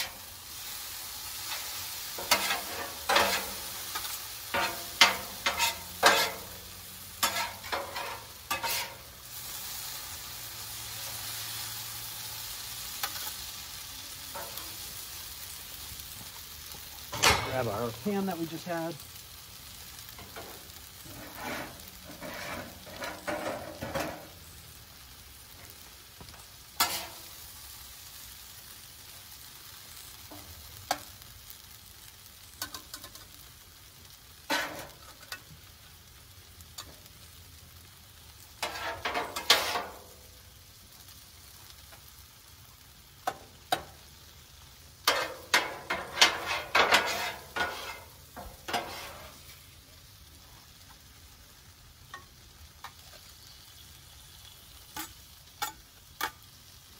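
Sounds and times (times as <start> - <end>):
food sizzling on a griddle: 0.0 - 56.9
metal spatulas scraping steel: 2.2 - 6.5, 7.2 - 9.0, 21.1 - 24.2, 26.8 - 27.2, 38.6 - 39.9, 45.1 - 48.1, 48.7 - 49.4.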